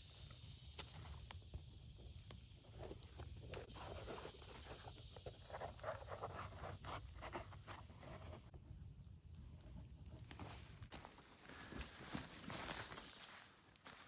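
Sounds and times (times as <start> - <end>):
steady high hiss: 0.0 - 8.5.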